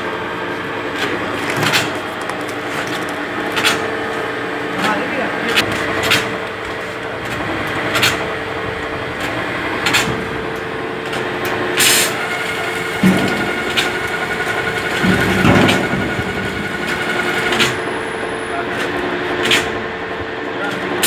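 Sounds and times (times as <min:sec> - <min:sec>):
bag-filling machine humming: 0:00.0 - 0:21.0.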